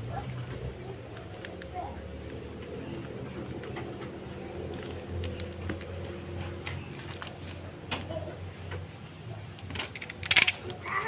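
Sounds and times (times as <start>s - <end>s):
steady low hum: 0.0s - 11.0s
plastic wrapping crinkling: 4.5s - 7.6s.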